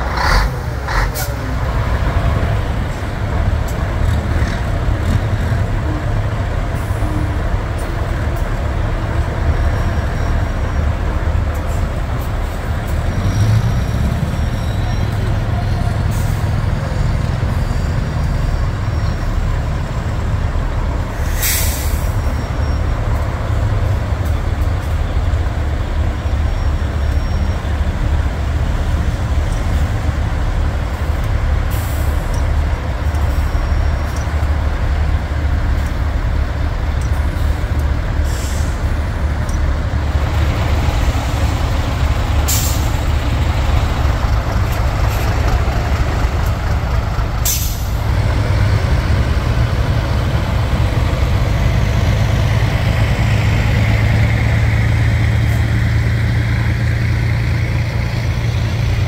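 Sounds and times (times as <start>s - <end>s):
diesel truck engines rumbling: 0.0s - 59.0s
air brake hisses: 21.2s - 22.2s, 38.2s - 38.9s, 42.5s - 43.0s, 47.4s - 48.0s.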